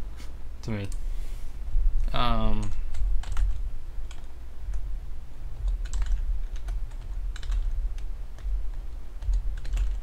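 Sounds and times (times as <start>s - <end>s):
steady low hum: 0.0s - 10.0s
typing on keyboard: 2.6s - 4.3s, 5.6s - 8.5s, 9.2s - 10.0s.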